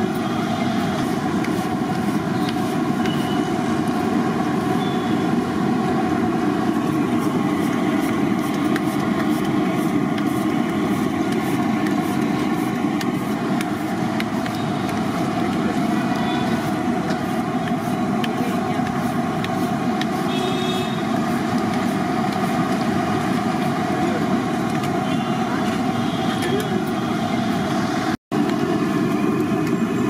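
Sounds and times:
hot oil crackling: 0.0 - 30.0.

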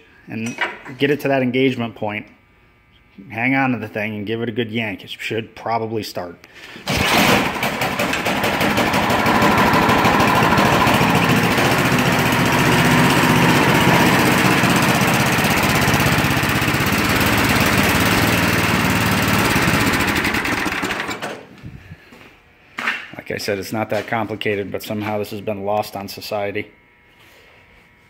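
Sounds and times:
snowblower engine running: 6.8 - 21.5.

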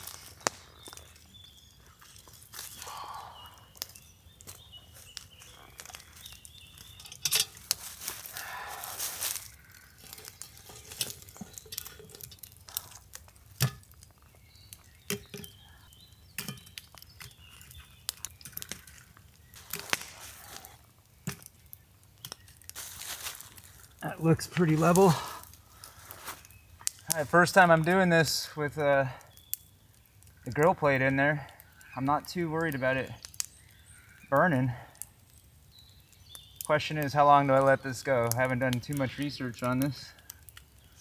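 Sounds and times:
coals scraping and rustling: 0.0 - 41.0
cast iron pot knocking and clinking: 7.0 - 7.6, 13.6 - 13.9, 15.1 - 15.5, 16.4 - 16.7.

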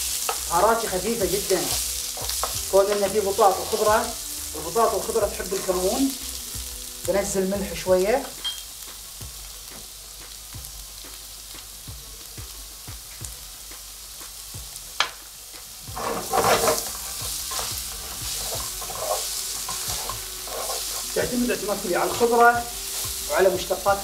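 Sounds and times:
vegetables sizzling in oil: 0.0 - 24.0
wooden spatula scraping pan: 15.9 - 23.0.

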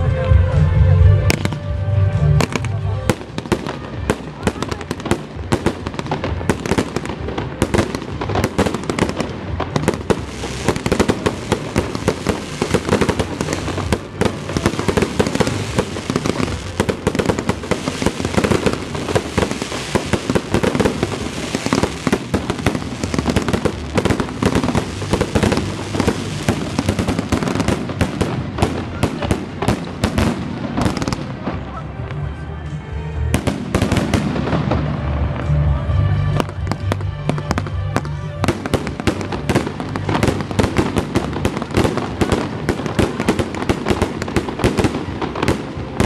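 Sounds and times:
fireworks bursting: 1.2 - 46.0.

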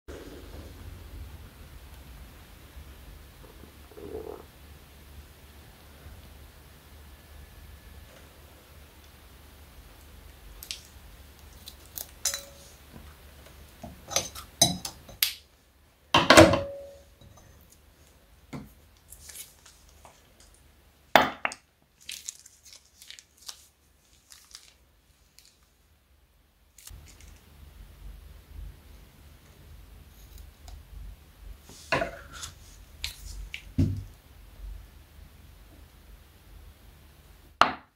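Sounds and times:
plastic piping bag crinkling: 10.6 - 12.8, 19.0 - 20.6, 21.9 - 25.8, 26.7 - 27.5.

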